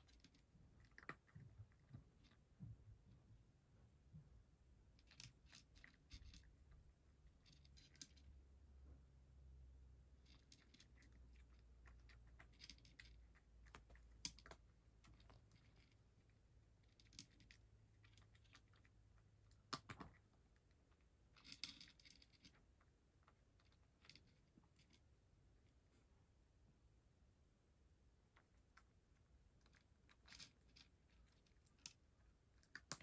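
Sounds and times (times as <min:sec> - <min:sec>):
cat crunching dry food: 0:00.0 - 0:02.4, 0:05.0 - 0:06.6, 0:07.3 - 0:08.3, 0:10.2 - 0:25.0, 0:29.5 - 0:33.0.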